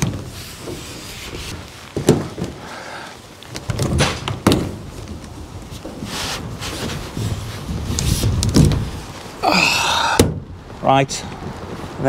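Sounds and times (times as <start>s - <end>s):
knocks on tent poles: 0.0s - 2.8s, 3.5s - 7.3s, 8.0s - 9.0s
shuffling and rustling fabric: 0.0s - 4.0s, 4.6s - 9.4s.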